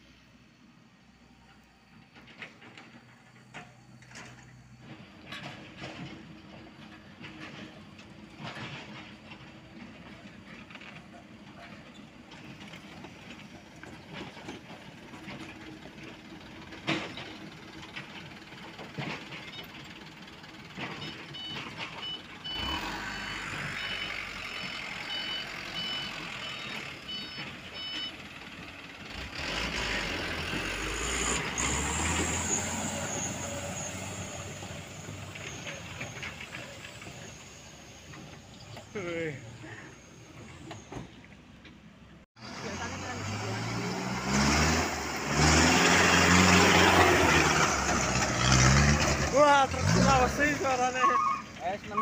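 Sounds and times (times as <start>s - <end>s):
diesel truck engines running: 0.0s - 52.0s
reversing alarm beeping: 21.0s - 28.2s.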